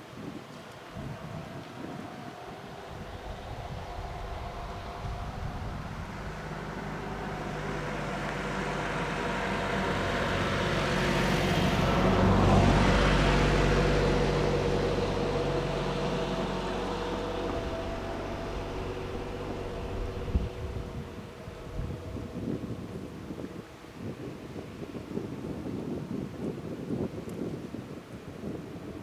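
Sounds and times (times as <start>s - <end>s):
vehicle driving past: 0.8s - 24.0s.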